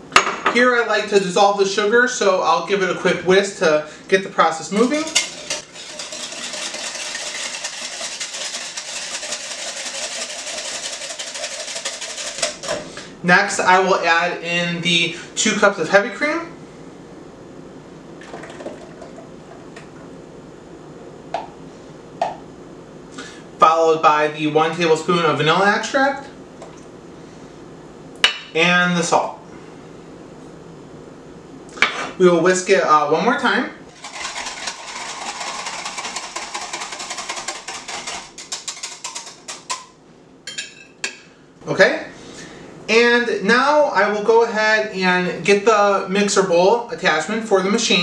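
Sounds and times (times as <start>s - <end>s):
whisk clattering against glass: 4.8s - 12.8s, 34.0s - 39.9s
cream pouring into glass: 18.2s - 19.2s.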